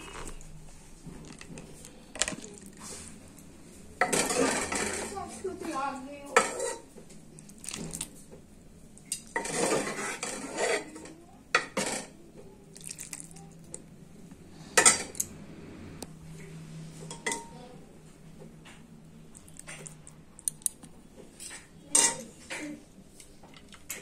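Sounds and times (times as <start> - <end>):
metal spoon scraping a pot: 4.0 - 5.2, 6.4 - 6.9, 9.1 - 12.1.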